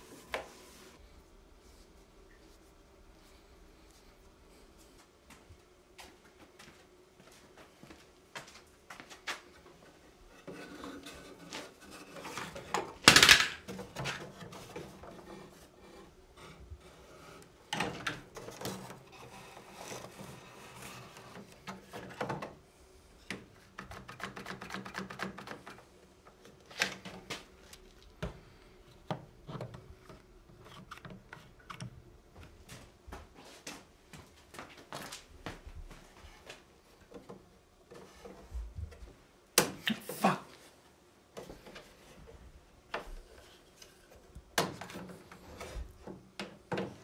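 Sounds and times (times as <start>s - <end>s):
wood strips and clamps handled: 10.3s - 22.6s.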